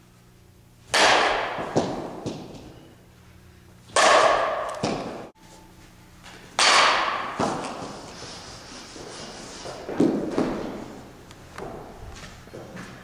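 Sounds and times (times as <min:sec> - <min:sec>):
bat cracking against ball: 0:00.9 - 0:02.9, 0:03.9 - 0:05.3, 0:06.2 - 0:08.1.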